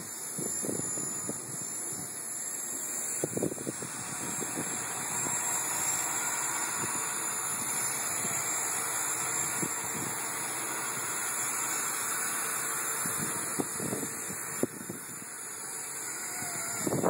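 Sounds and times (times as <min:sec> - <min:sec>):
model helicopter motor whine: 0:00.0 - 0:17.0.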